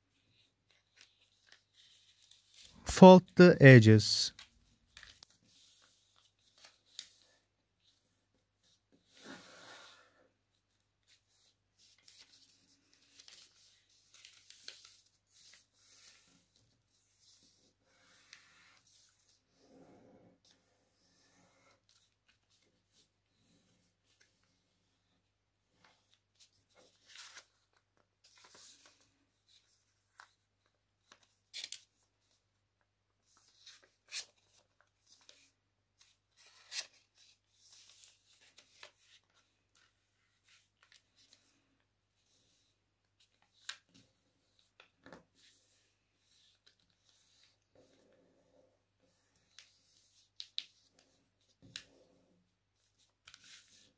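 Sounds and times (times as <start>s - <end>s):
paper being folded and creased: 0.2s - 2.7s, 4.4s - 7.2s, 11.0s - 19.1s, 25.7s - 32.4s, 33.2s - 41.5s, 42.2s - 48.1s, 52.8s - 53.9s
paper rustling and crinkling: 0.2s - 2.7s, 11.0s - 16.2s, 33.2s - 41.6s, 52.8s - 53.9s.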